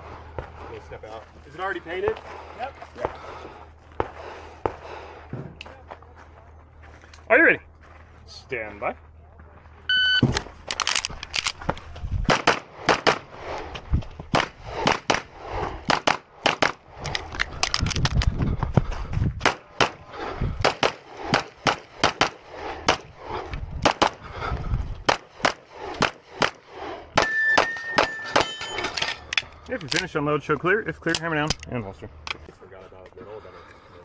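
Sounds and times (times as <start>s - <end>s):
pistol firing rapidly: 20.6s - 23.0s.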